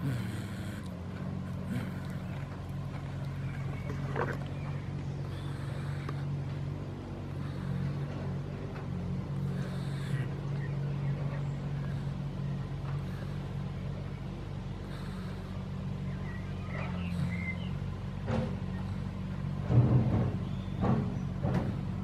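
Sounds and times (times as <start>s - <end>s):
low engine hum: 0.0s - 22.0s
faint chirps: 14.9s - 18.0s.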